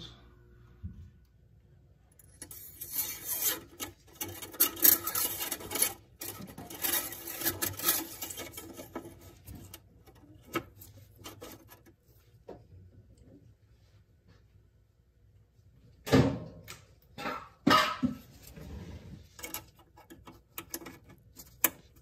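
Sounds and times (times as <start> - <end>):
gloved hands rubbing and scraping: 2.4 - 9.8.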